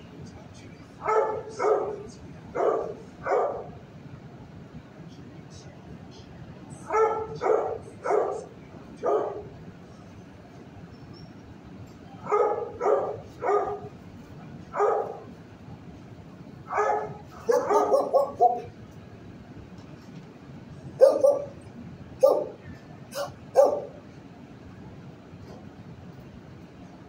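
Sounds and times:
dog barking: 1.0s - 3.8s, 6.8s - 9.6s, 12.2s - 14.0s, 14.7s - 15.3s, 16.7s - 18.7s, 21.0s - 21.6s, 22.2s - 24.0s.

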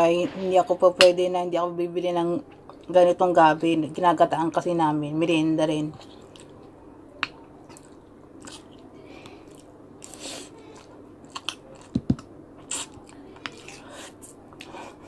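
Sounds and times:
person chewing food: 6.0s - 15.0s.

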